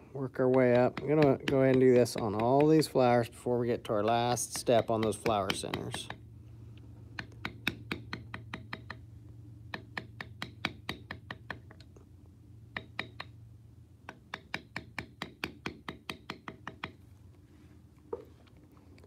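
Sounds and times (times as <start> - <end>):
mallet tapping tool into leather: 0.4 - 3.0, 4.3 - 6.2, 7.2 - 9.0, 9.7 - 11.9, 12.7 - 13.4, 14.0 - 17.0.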